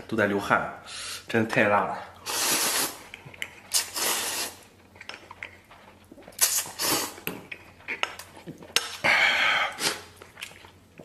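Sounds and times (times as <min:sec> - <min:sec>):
man slurping noodles: 0:02.2 - 0:03.1, 0:03.7 - 0:04.6, 0:06.4 - 0:07.3
chewing: 0:03.0 - 0:03.9, 0:04.6 - 0:09.1, 0:09.7 - 0:11.0.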